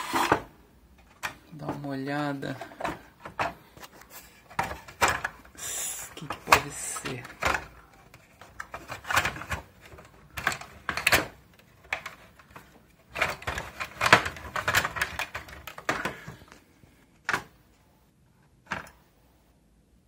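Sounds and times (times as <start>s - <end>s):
plastic and metal parts clattering: 0.0s - 16.6s, 17.2s - 17.6s, 18.6s - 19.0s.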